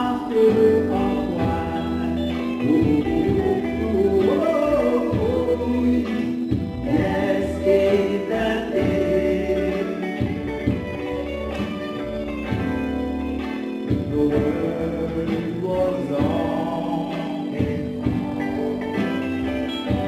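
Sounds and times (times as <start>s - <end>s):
man singing: 0.0s - 10.7s, 13.9s - 19.0s
bass line: 0.0s - 20.0s.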